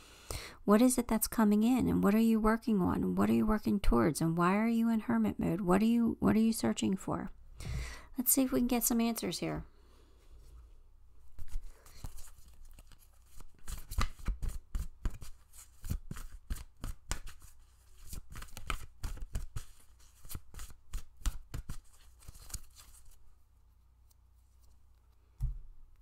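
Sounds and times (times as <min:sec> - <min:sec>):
cards being shuffled: 0:11.3 - 0:23.2.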